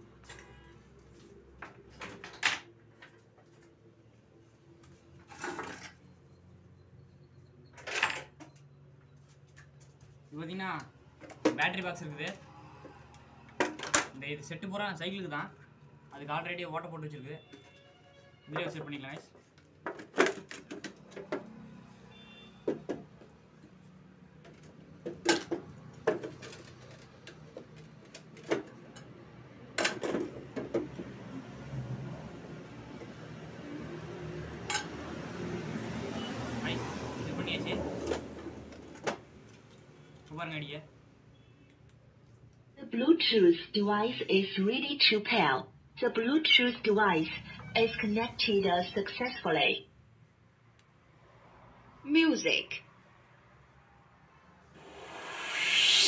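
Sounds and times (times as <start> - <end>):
objects rustling and scraping: 4.9 - 6.3.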